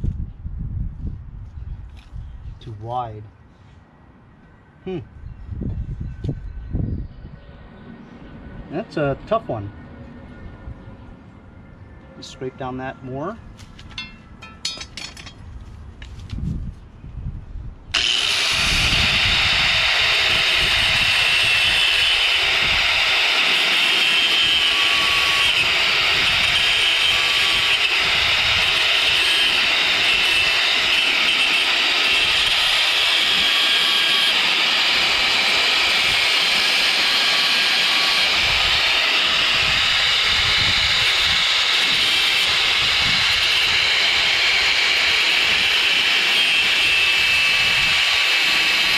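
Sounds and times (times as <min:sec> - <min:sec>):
angle grinder grinding metal: 0:18.0 - 0:48.9.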